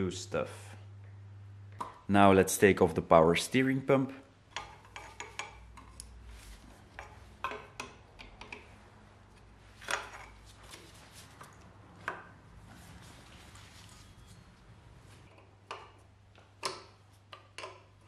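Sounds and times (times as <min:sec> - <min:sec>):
low steady hum: 0:00.0 - 0:17.1
wrench clicking and knocking: 0:16.6 - 0:18.0.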